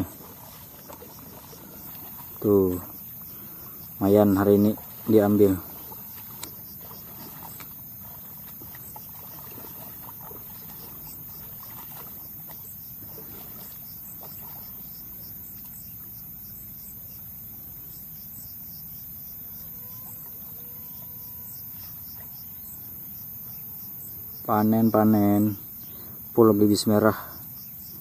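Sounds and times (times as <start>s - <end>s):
water splashing from wading: 0.0s - 17.5s
insects chirping: 0.0s - 28.0s.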